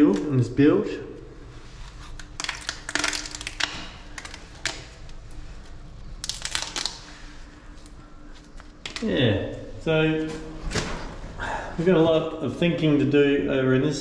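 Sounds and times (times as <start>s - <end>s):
brittle paint flakes crackling: 1.6s - 9.1s.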